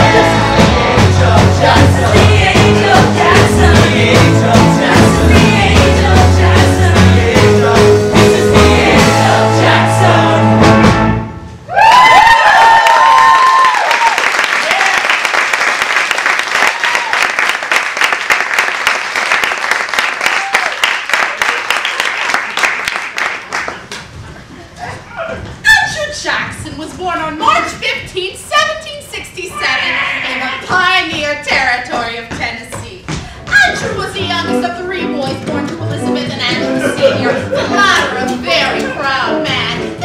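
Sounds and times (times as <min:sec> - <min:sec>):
live rock band and singing: 0:00.0 - 0:11.2
audience cheering and whooping: 0:11.7 - 0:15.3, 0:16.5 - 0:17.5, 0:20.2 - 0:20.9
audience applauding: 0:11.9 - 0:24.1.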